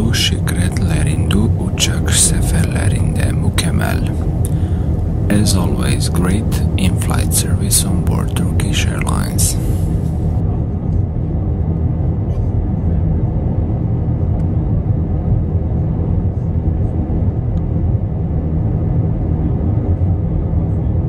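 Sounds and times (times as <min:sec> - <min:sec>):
airplane cabin engine noise: 0:00.0 - 0:21.0.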